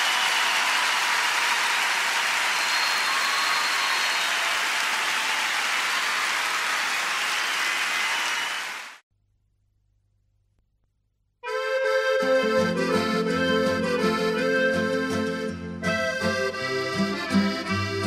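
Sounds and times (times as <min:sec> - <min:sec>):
audience applause: 0:00.0 - 0:09.0
accordion tune: 0:11.4 - 0:18.0.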